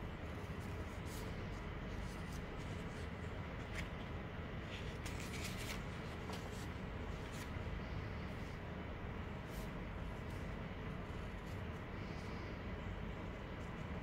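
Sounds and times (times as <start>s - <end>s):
paper rustling and crinkling: 0.4s - 7.7s.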